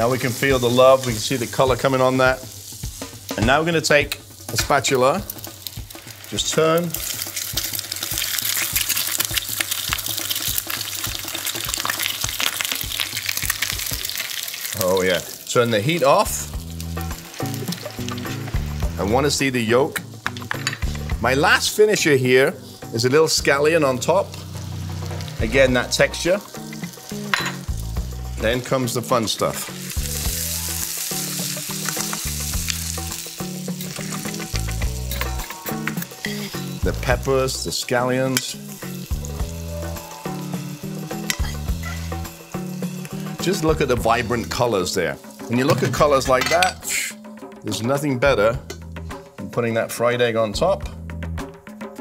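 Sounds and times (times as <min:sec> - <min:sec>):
background music with bass: 0:00.0 - 0:06.9, 0:16.0 - 0:49.7, 0:50.3 - 0:52.0
egg sizzling in hot oil: 0:00.0 - 0:23.0, 0:24.0 - 0:28.7, 0:29.4 - 0:46.8
metal spoon scraping a pan: 0:33.1 - 0:36.8, 0:41.1 - 0:43.6.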